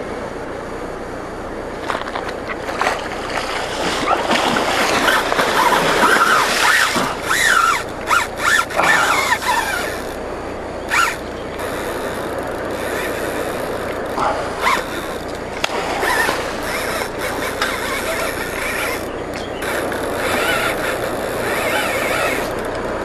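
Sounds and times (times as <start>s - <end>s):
water splashing from thrashing fish: 1.9s - 10.1s, 14.1s - 22.1s.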